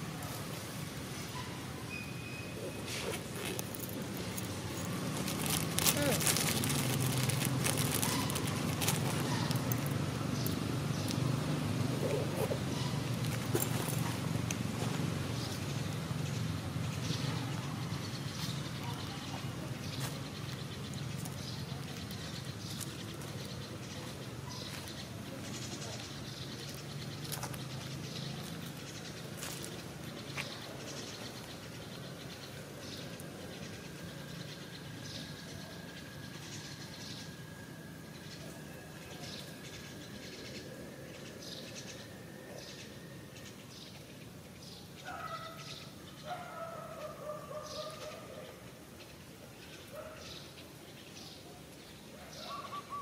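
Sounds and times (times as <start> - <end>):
birds chirping: 0.0 - 53.0
outdoor background noise: 0.0 - 53.0
drawn-out animal calls: 2.5 - 10.2.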